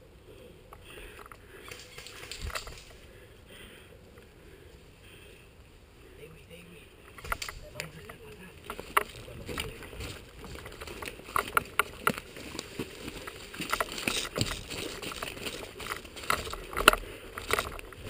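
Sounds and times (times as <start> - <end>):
clothing and gear rustling: 1.4 - 3.2, 7.1 - 18.0.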